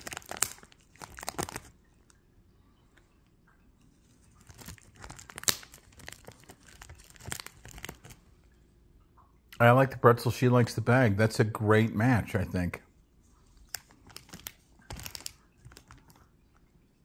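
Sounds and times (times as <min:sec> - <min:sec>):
cat chewing crinkly foil bag: 0:00.0 - 0:02.0, 0:04.0 - 0:08.3, 0:13.5 - 0:16.3.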